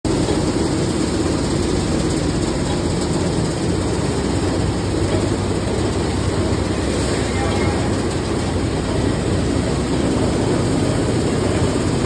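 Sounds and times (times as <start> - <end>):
machinery running: 0.1 - 12.0.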